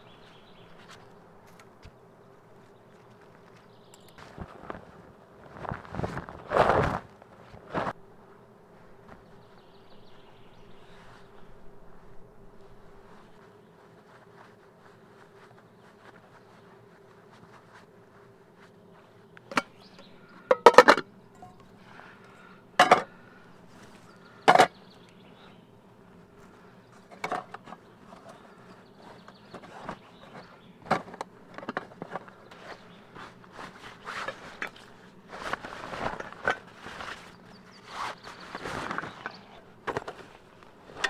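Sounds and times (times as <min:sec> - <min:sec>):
faint steady buzz: 0:00.0 - 0:41.0
canvas bag rustling: 0:04.2 - 0:08.0, 0:31.8 - 0:41.0.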